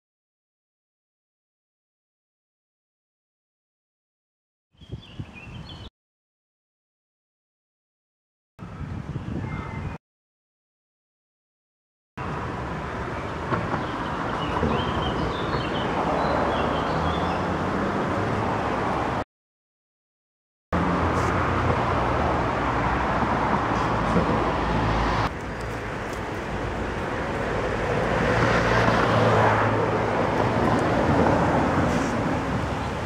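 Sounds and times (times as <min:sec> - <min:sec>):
street traffic noise: 0:12.2 - 0:19.2, 0:20.7 - 0:33.0.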